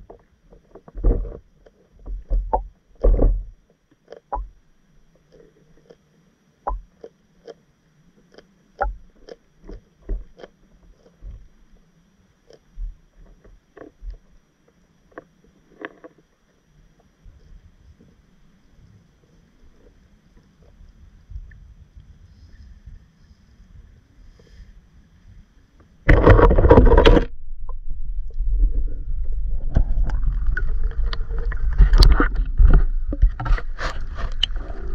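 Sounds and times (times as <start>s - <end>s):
muffled underwater knocks and thumps: 0.0s - 4.6s, 6.6s - 6.9s, 8.8s - 11.7s, 25.8s - 34.9s
water rushing and sloshing: 26.1s - 34.9s.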